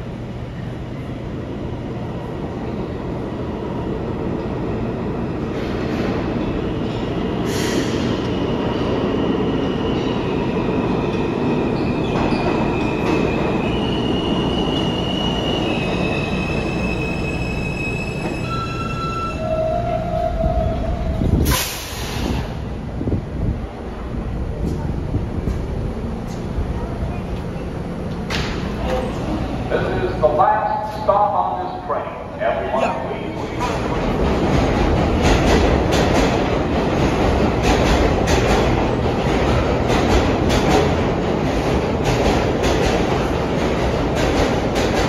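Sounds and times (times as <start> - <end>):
subway train rumble on rails: 0.0 - 45.0
air hiss: 21.4 - 22.6.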